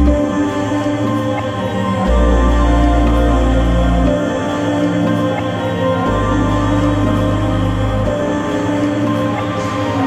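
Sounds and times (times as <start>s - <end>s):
sustained background music: 0.0s - 10.0s
deep bass tone: 2.1s - 4.4s.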